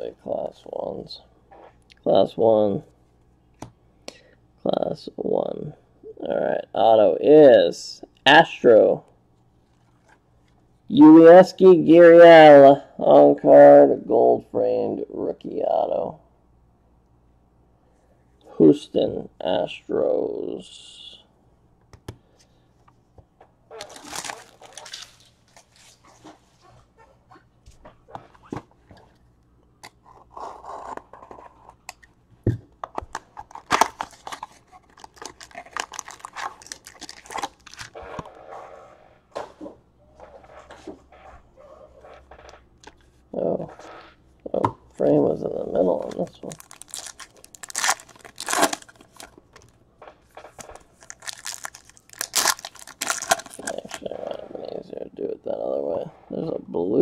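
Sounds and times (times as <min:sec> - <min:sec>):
wrapper crackling: 0:23.7 - 0:26.0, 0:33.2 - 0:38.0, 0:46.0 - 0:49.8, 0:50.5 - 0:54.1
cardboard tearing: 0:23.8 - 0:26.0, 0:33.5 - 0:38.0, 0:46.4 - 0:49.3, 0:50.6 - 0:54.1.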